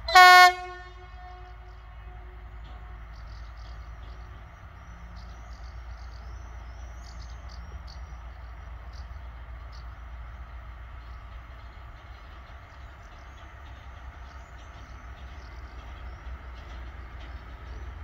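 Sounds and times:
distant freight train rumble: 0.0 - 18.0
birds chirping: 0.1 - 18.0
insects chirping: 1.6 - 11.3.

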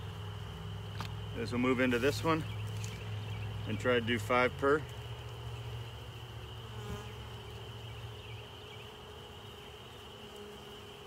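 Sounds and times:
honeybees buzzing: 0.0 - 11.0.

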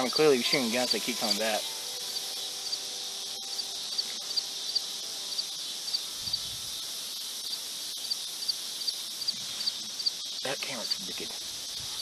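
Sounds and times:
cricket chirping: 0.0 - 12.0
high-pitched insect hiss: 0.0 - 12.0.

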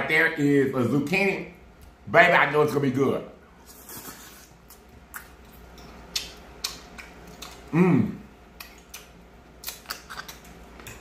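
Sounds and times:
man eating: 3.5 - 11.0
man humming mmm: 7.7 - 8.3.

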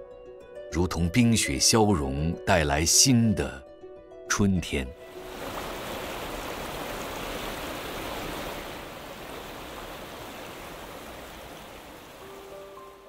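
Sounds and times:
stream water flowing: 5.0 - 13.0.

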